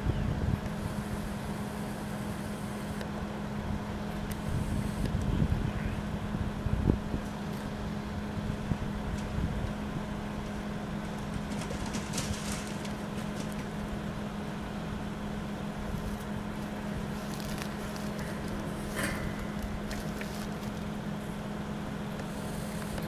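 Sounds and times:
low mechanical hum: 0:00.0 - 0:23.0
faint crackles and rustles: 0:08.5 - 0:14.4, 0:15.8 - 0:21.2.

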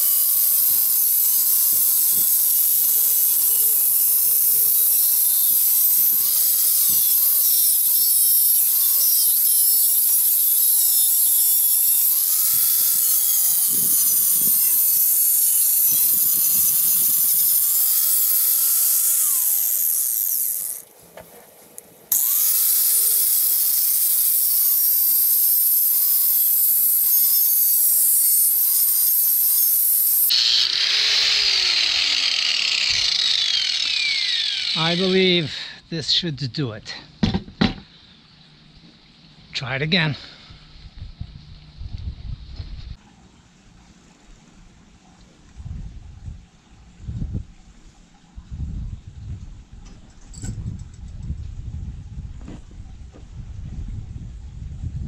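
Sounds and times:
angle grinder grinding metal: 0:00.0 - 0:21.4, 0:22.1 - 0:35.5.

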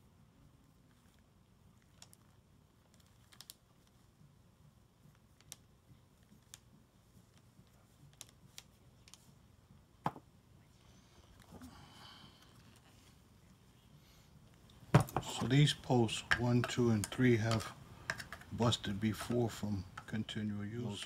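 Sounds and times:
small parts clicking and tapping: 0:16.1 - 0:18.5.

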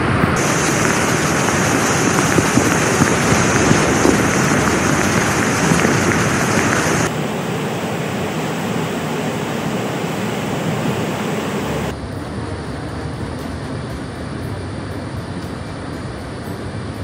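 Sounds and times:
floodwater rushing: 0:00.0 - 0:11.9.

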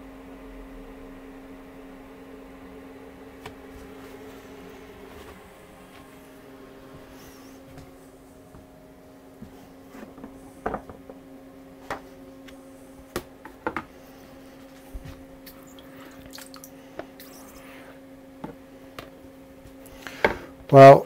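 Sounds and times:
low hum: 0:00.0 - 0:20.1
water drips and splashes: 0:15.4 - 0:17.3.

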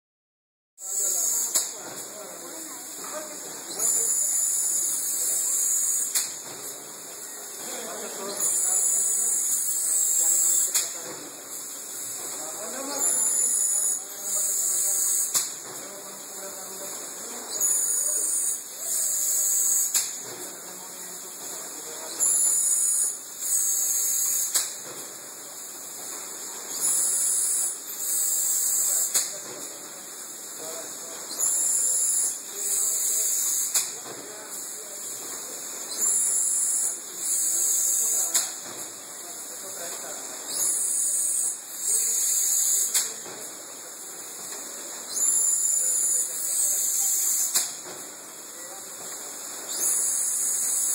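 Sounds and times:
sharp machine click: 0:05.8 - 0:06.4, 0:15.2 - 0:15.6, 0:19.6 - 0:20.2, 0:24.4 - 0:24.8, 0:33.6 - 0:33.9, 0:42.6 - 0:43.2, 0:47.2 - 0:47.8
air hiss: 0:17.6 - 0:20.3, 0:22.2 - 0:24.9, 0:26.7 - 0:29.5, 0:31.3 - 0:34.9, 0:35.5 - 0:38.7, 0:40.5 - 0:43.3, 0:45.0 - 0:47.9, 0:49.6 - 0:50.9.

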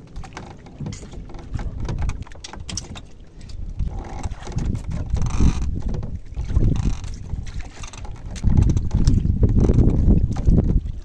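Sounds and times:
wind rumbling on microphone: 0:00.0 - 0:11.0
light clicks and knocks: 0:00.2 - 0:03.6.

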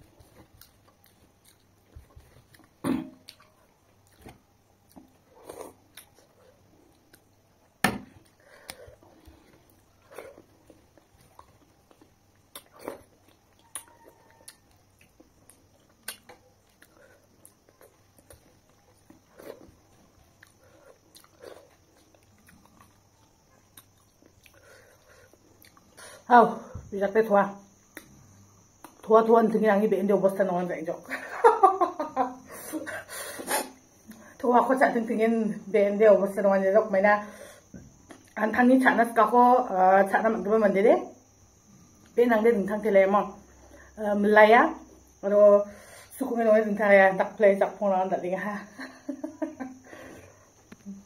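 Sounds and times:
chewing and mouth smacks: 0:00.2 - 0:07.4, 0:08.2 - 0:26.0
mouth smacks and clicks: 0:10.9 - 0:18.5.

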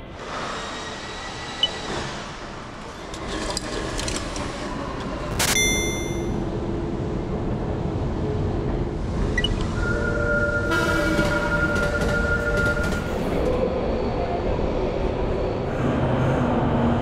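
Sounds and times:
subway station ambience: 0:00.0 - 0:17.0
electronic ticket gate beep: 0:05.5 - 0:06.4.

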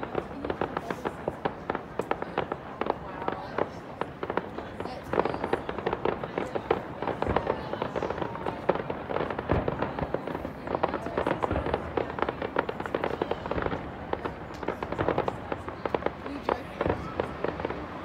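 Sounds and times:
deep firework bangs: 0:00.0 - 0:18.0
fireworks crackling: 0:00.0 - 0:18.0.

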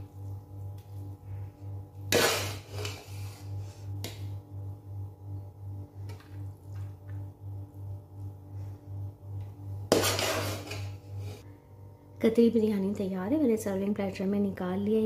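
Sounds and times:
metal spoon scraping a pot: 0:02.1 - 0:03.6, 0:09.9 - 0:11.4.

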